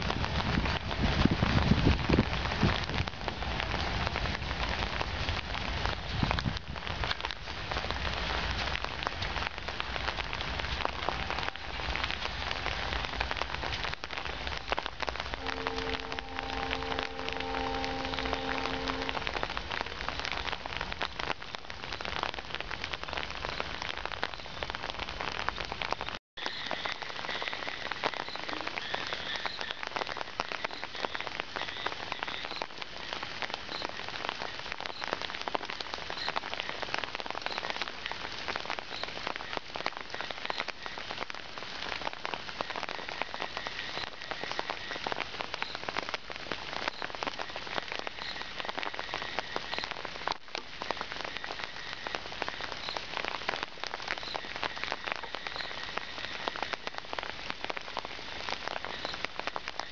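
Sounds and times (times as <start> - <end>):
rain pattering: 0.0 - 59.9
distant train horn blast: 15.4 - 19.8.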